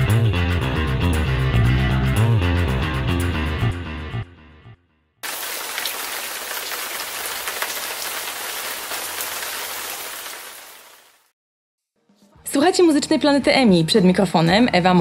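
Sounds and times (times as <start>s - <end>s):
static hiss with crackle: 5.2s - 11.2s.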